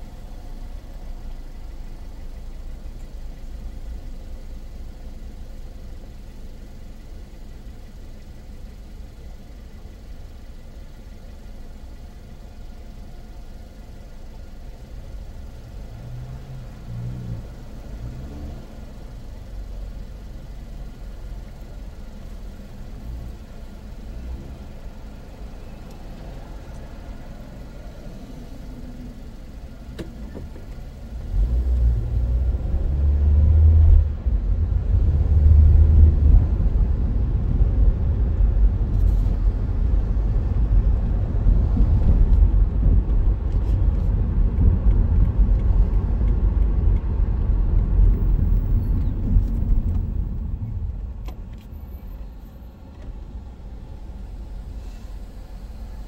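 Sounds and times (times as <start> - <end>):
car engine and road rumble: 0.0 - 56.0
low traffic rumble: 0.0 - 56.0.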